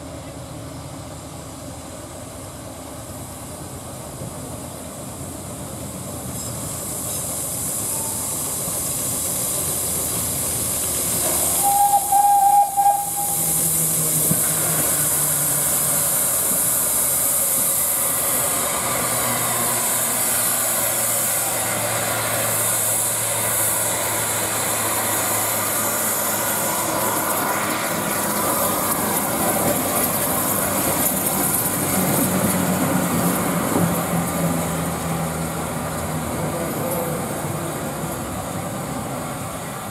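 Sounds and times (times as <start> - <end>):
low rumble of moving train: 0.0 - 39.9
steam locomotive hissing: 0.4 - 39.9
steam whistle note: 11.4 - 14.0.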